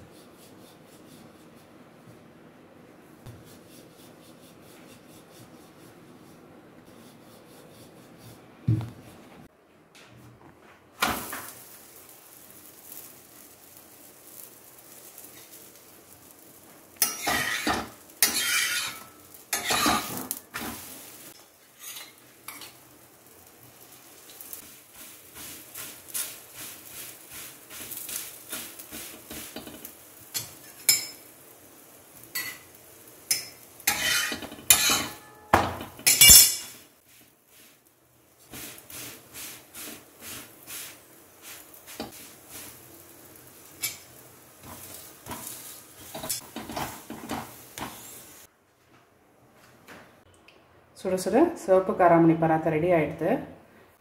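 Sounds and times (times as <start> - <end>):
metal spatula scraping iron griddle: 17.0 - 22.8, 24.2 - 31.3, 32.3 - 37.8, 38.4 - 48.4.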